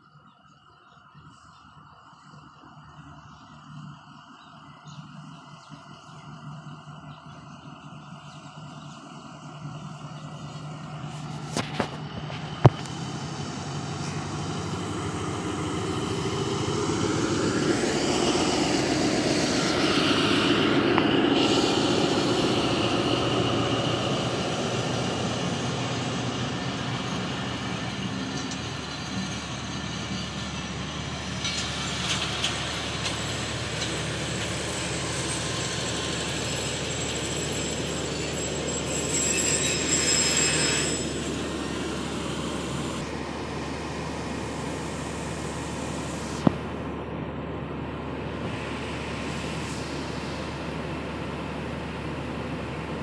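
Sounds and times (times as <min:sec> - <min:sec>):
locomotive engine passing: 0:01.0 - 0:53.0
coaches rolling over rails: 0:05.0 - 0:47.2.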